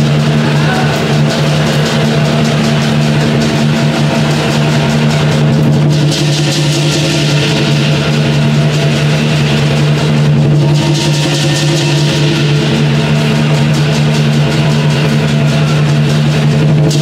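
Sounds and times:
big drum beating: 0:00.0 - 0:17.0
rapid cymbal clashes: 0:00.0 - 0:17.0.

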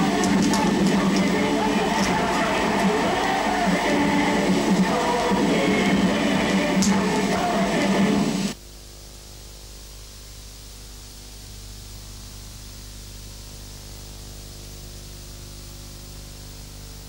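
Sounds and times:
low hum: 0:00.0 - 0:17.0
steady hiss: 0:00.0 - 0:17.0.

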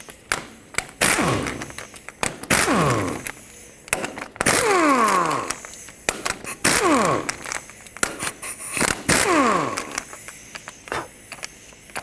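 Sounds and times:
pneumatic impact wrench: 0:00.0 - 0:12.0
air motor whining down: 0:02.5 - 0:03.4, 0:04.5 - 0:05.7, 0:09.0 - 0:10.2.

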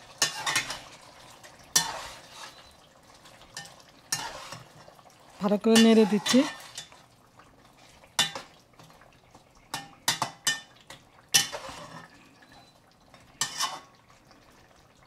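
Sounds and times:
metal spatula scraping a pot: 0:00.1 - 0:01.1, 0:01.7 - 0:02.8, 0:03.5 - 0:07.0, 0:09.7 - 0:14.0.

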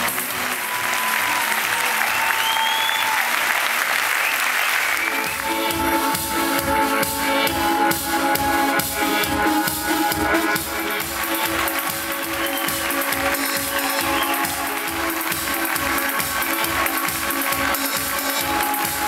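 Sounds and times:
audience applause: 0:00.0 - 0:19.0
electronic keyboard music: 0:05.1 - 0:19.0.

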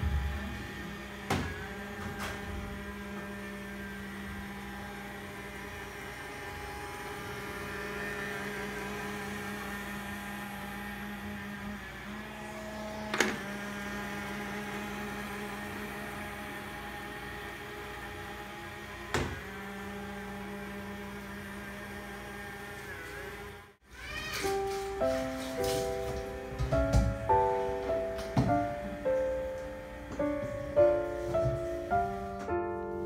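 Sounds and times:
robot vacuum motor hum: 0:00.0 - 0:23.8.

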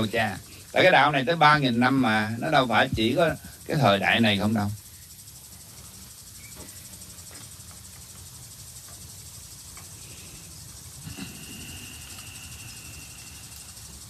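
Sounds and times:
insects chirping: 0:00.0 - 0:14.0
faint ticks: 0:04.8 - 0:14.0.

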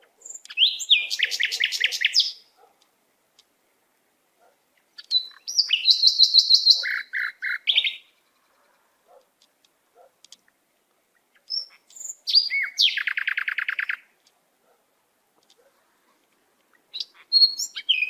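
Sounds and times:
songbird singing: 0:00.0 - 0:18.0.

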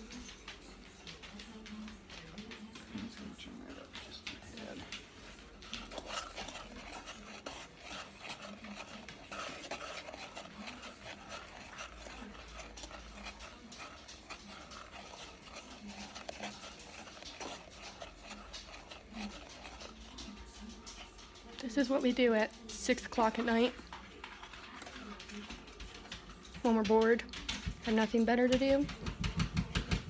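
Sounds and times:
spoon scraping saucepan: 0:04.4 - 0:28.8.

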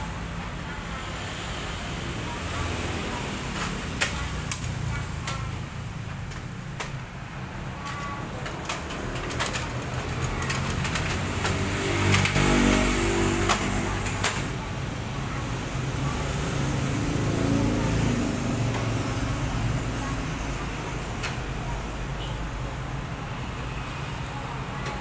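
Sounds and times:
sharp clicks and knocks: 0:03.5 - 0:07.1, 0:07.8 - 0:14.6.

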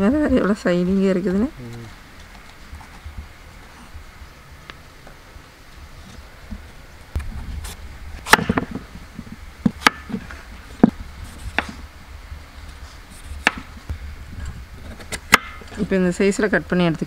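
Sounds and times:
knife striking wooden board: 0:08.3 - 0:08.8, 0:09.7 - 0:10.2, 0:13.4 - 0:13.7, 0:15.1 - 0:15.6.

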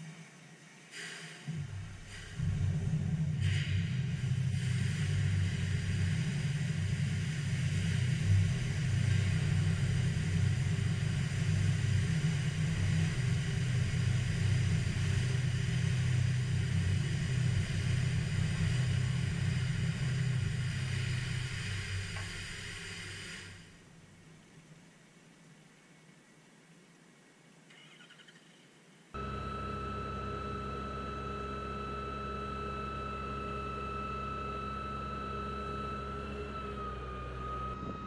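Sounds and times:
large flames burning: 0:01.7 - 0:23.8.

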